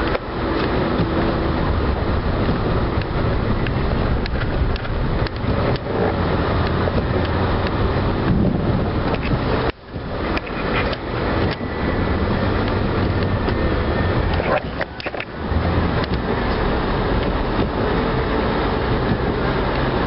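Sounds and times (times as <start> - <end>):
plow engine running: 0.0 - 20.0
sharp clicks and knocks: 2.4 - 5.9, 9.0 - 11.6, 14.2 - 15.4, 16.0 - 17.8.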